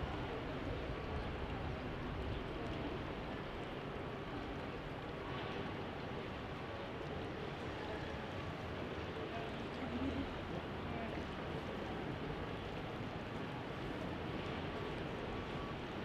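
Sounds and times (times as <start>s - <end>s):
faint voices: 6.6s - 16.0s.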